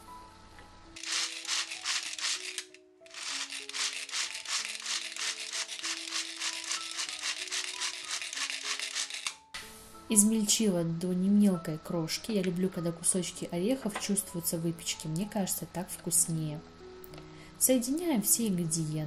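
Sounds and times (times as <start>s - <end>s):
manual food chopper whirring: 1.0s - 9.4s.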